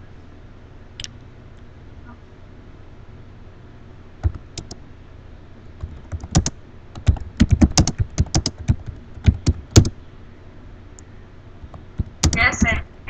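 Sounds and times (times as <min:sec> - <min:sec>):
computer keyboard typing: 0:04.2 - 0:04.8, 0:05.8 - 0:10.0, 0:12.0 - 0:12.4.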